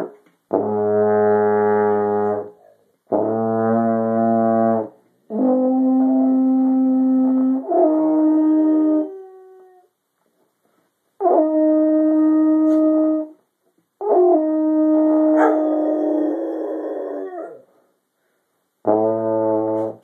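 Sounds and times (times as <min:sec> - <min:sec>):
baritone horn held notes: 0:00.0 - 0:09.5, 0:11.2 - 0:13.4, 0:14.0 - 0:16.2, 0:18.8 - 0:20.0
dog howling: 0:15.3 - 0:17.6.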